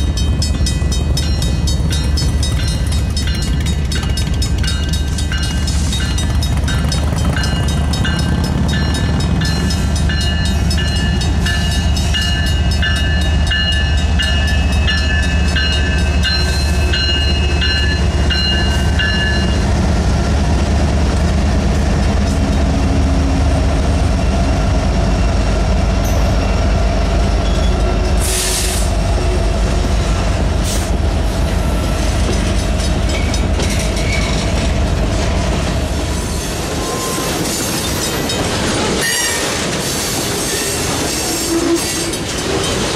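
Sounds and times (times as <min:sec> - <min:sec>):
railroad crossing bell ringing: 0:00.0 - 0:19.8, 0:24.6 - 0:29.4, 0:31.5 - 0:34.8, 0:36.4 - 0:39.5
diesel locomotive rumble: 0:00.0 - 0:42.9.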